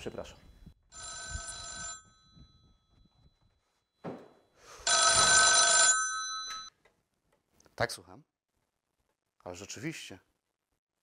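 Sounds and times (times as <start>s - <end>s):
telephone bell ringing: 0.9s - 6.7s.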